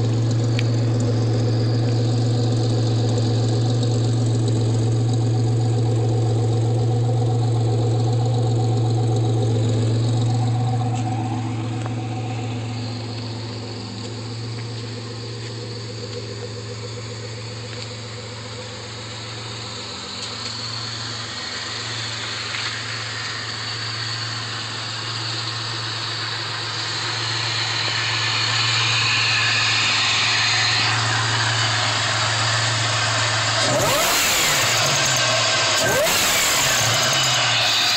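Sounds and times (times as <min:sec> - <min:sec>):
car engine idling and revving: 0:00.0 - 0:37.9.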